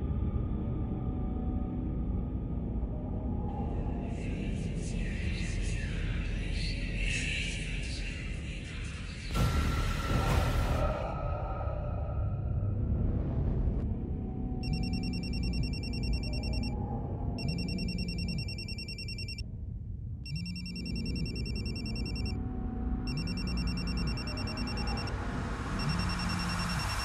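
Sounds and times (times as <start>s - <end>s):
steady low rumble: 0.0s - 27.0s
phone ringing electronic trill: 14.6s - 16.7s, 17.4s - 19.4s, 20.3s - 22.4s, 23.1s - 25.1s, 25.8s - 27.0s.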